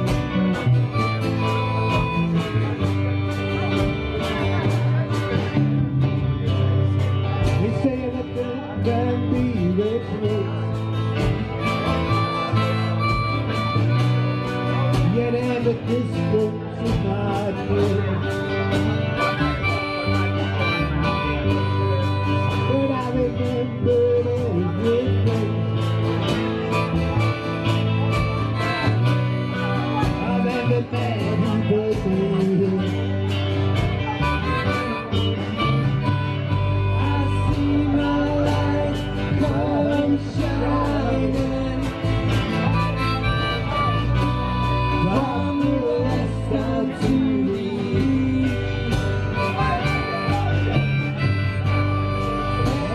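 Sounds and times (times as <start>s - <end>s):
harmonica with bending notes: 0.0s - 7.1s, 10.5s - 16.9s, 17.8s - 24.3s, 26.4s - 31.0s, 33.7s - 41.0s, 42.0s - 46.7s, 48.3s - 52.9s
blues band playing: 0.0s - 52.9s.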